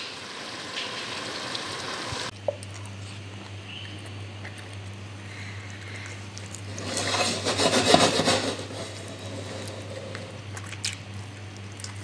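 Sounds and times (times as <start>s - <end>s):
steady low hum: 0.0s - 12.0s
stew simmering with sizzling hiss: 0.0s - 12.0s.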